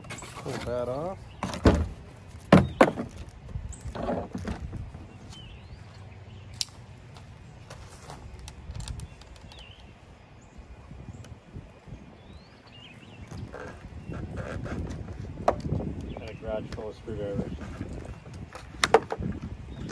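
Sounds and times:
bird chirps: 8.9s - 14.6s.

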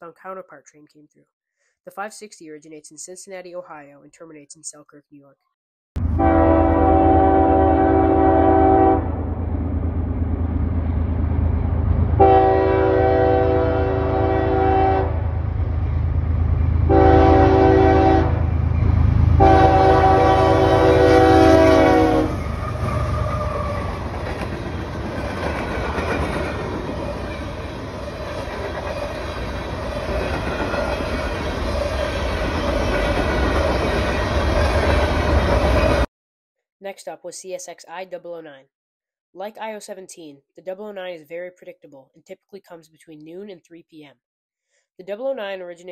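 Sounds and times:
locomotives rumbling past: 6.0s - 36.1s
locomotive horn blasts: 6.1s - 9.2s, 12.2s - 15.3s, 16.9s - 18.5s, 19.4s - 23.8s.

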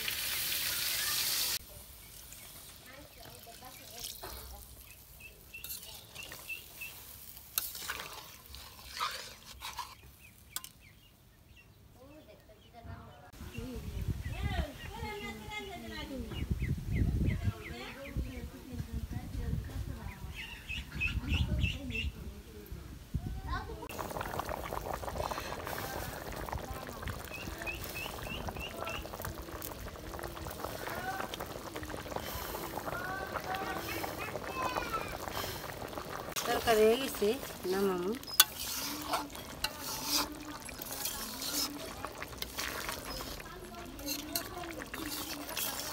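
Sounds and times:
thick sauce bubbling in a pot: 1.7s - 10.6s, 23.8s - 45.9s
metal spatula scraping through sauce: 5.6s - 10.7s, 38.2s - 45.9s.

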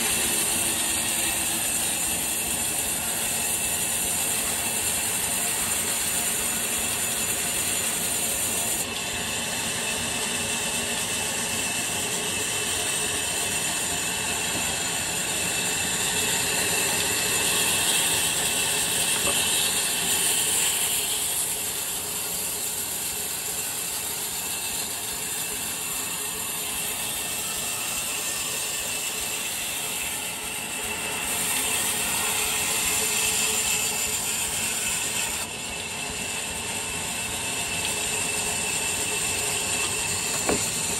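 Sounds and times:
band saw cutting through log: 0.0s - 40.9s.

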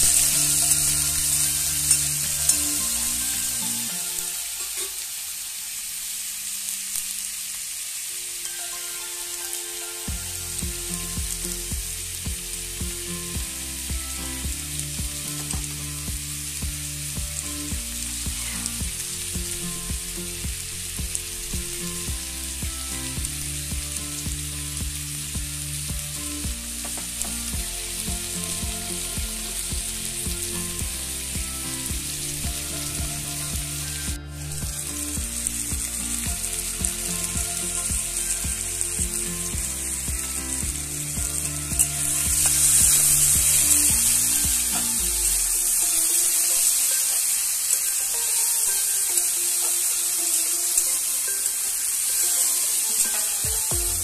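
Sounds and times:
background music with a beat: 0.0s - 5.2s, 8.5s - 54.0s
potatoes sizzling in a pan: 0.0s - 54.0s.

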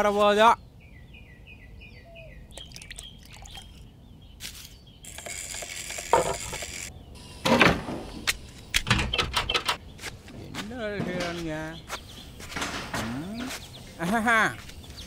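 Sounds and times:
wooden planks scraping: 9.9s - 13.8s.

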